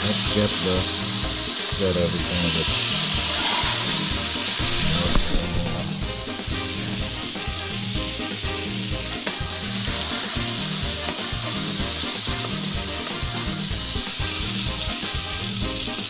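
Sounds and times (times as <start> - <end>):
oil sizzling in a pot: 0.0 - 16.0
low steady beat: 4.1 - 15.7.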